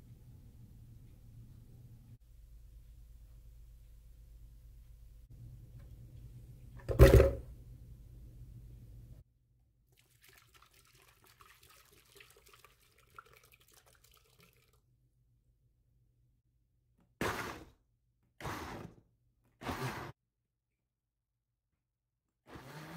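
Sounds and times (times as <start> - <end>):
water poured into blender jar: 10.0 - 14.8.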